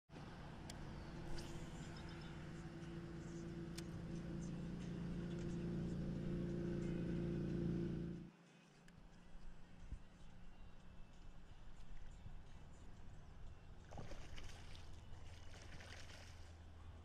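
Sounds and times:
low motor hum: 0.2s - 8.3s.

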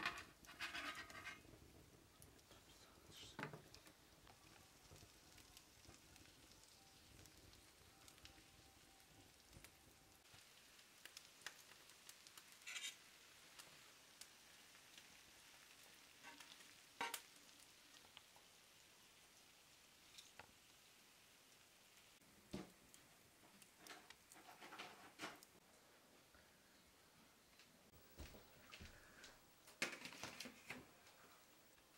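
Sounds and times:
crackles and clicks: 0.0s - 25.8s, 26.4s - 31.9s
fish sizzling in oil: 3.0s - 24.7s.

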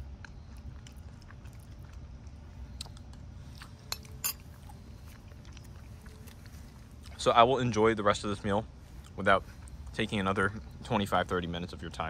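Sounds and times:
low steady rumble: 0.0s - 12.0s
metal spoon clinking ceramic bowl: 3.9s - 4.4s.

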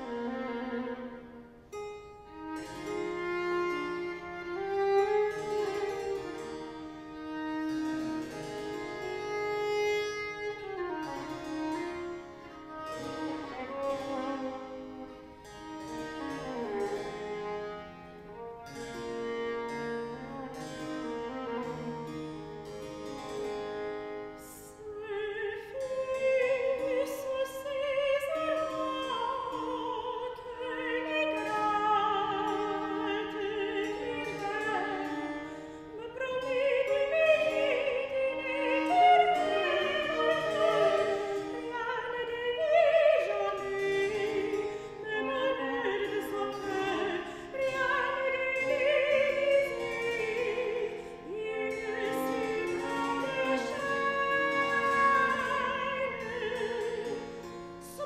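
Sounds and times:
viola: 0.0s - 58.0s
soprano singing with vibrato: 24.4s - 58.0s.

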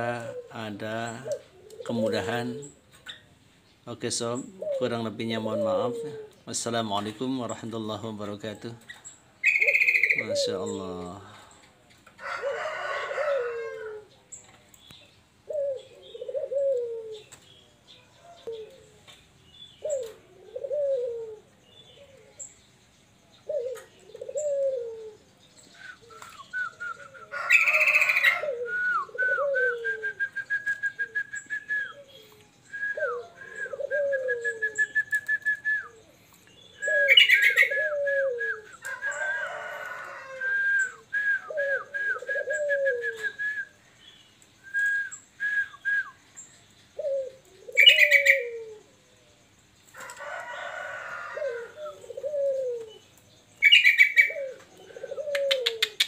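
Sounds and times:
dove cooing: 0.0s - 3.3s, 4.0s - 14.4s, 15.4s - 19.2s, 19.8s - 22.6s, 23.4s - 43.8s, 44.6s - 46.0s, 47.0s - 49.1s, 50.0s - 56.0s
small bird chirping and whistling: 9.0s - 10.7s, 23.7s - 39.3s, 40.8s - 48.6s, 52.8s - 54.6s.

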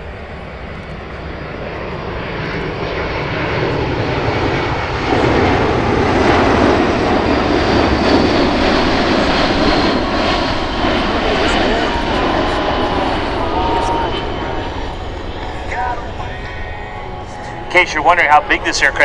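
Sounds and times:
jet engine roar: 0.0s - 19.0s
faint high whine: 7.2s - 19.0s.

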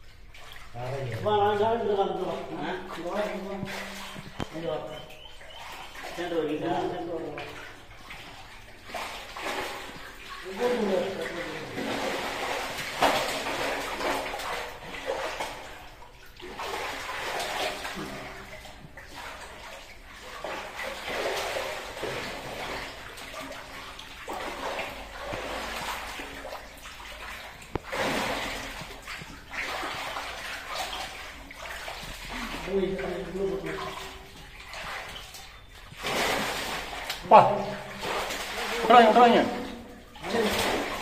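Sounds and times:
water splashing from wading: 0.0s - 41.0s.

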